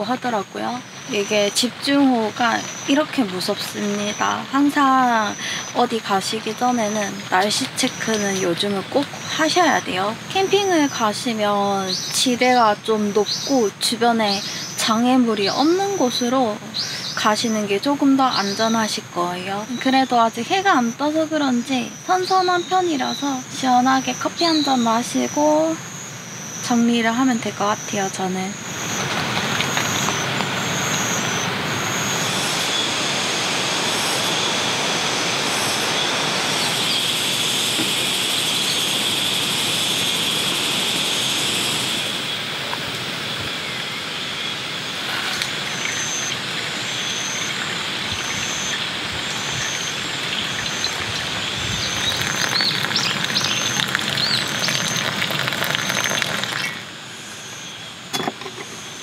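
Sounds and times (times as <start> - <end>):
rain falling on shelter: 0.0 - 11.2, 28.7 - 33.0, 44.8 - 56.9
high chirping: 43.6 - 56.8.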